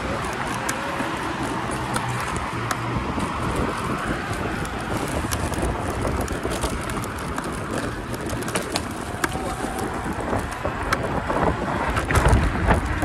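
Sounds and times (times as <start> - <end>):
scooter tyres on concrete: 0.0 - 13.0
small clicks and rattles: 0.0 - 13.0
wind rushing over microphone: 0.0 - 13.0.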